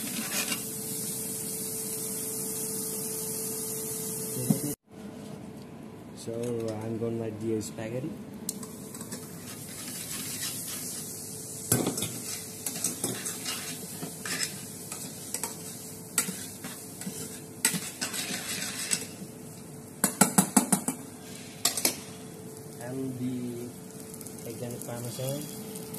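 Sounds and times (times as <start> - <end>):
pork sizzling: 0.0 - 4.8, 8.5 - 25.9
tongs clicking and scraping a pan: 11.9 - 19.1.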